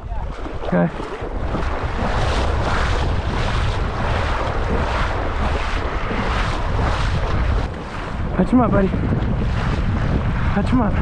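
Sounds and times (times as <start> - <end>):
wind buffeting microphone: 0.0 - 11.0
dog splashing through water: 0.1 - 8.2.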